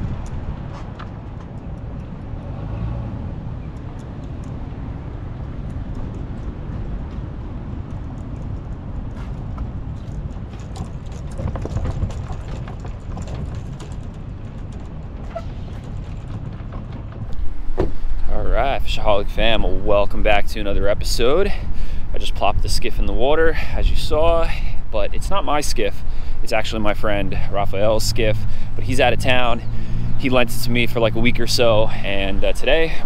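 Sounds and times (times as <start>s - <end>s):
trailer and tow vehicle rumble: 0.0s - 33.0s
light clicks and rattles: 5.4s - 18.3s.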